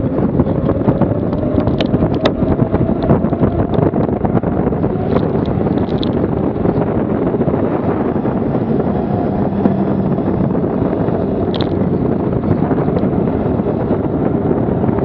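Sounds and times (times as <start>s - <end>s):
wind buffeting microphone: 0.0s - 15.0s
bike rattling clicks: 0.4s - 3.9s, 5.0s - 6.9s, 11.4s - 12.0s.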